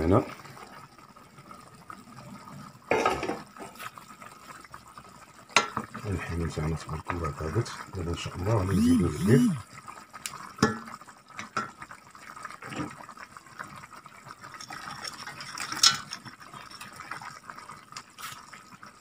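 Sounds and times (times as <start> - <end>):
meat and sauce simmering: 0.0 - 19.0.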